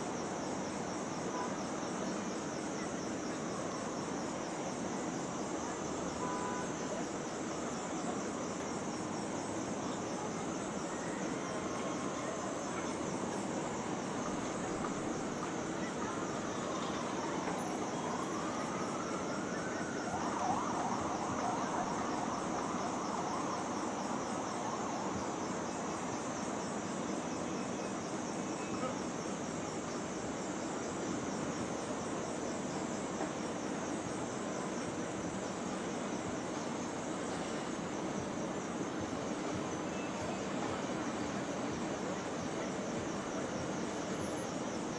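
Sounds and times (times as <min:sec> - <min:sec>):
city traffic: 0:11.3 - 0:26.0
emergency siren wailing: 0:17.8 - 0:24.2.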